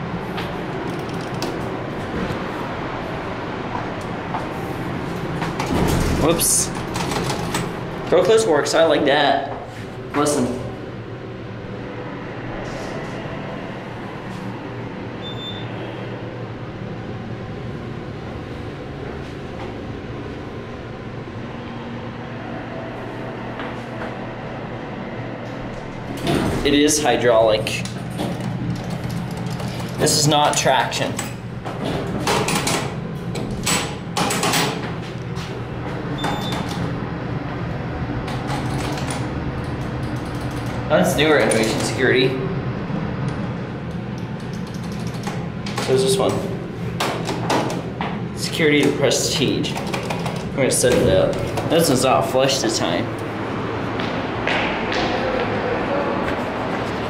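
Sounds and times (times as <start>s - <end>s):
elevator hum: 0.0s - 57.0s
high beep: 15.2s - 15.8s.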